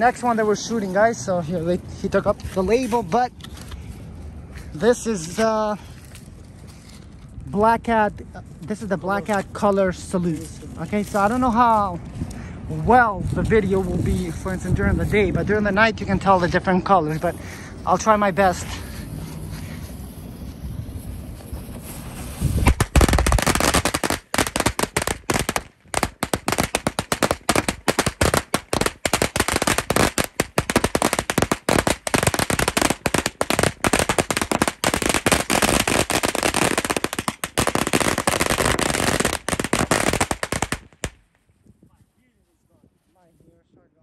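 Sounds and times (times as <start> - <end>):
firecrackers banging: 21.1 - 41.2.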